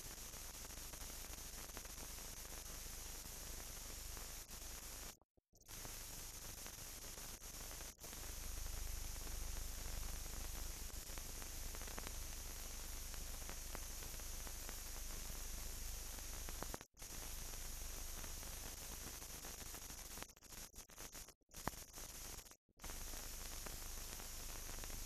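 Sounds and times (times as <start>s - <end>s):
film soundtrack hiss: 5.7s - 18.9s, 22.8s - 25.0s.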